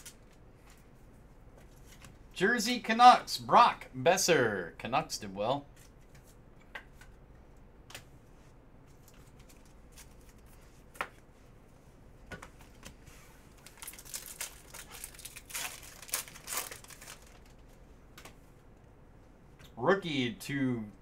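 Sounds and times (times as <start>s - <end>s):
foil wrapper crinkling and tearing: 13.5s - 17.6s.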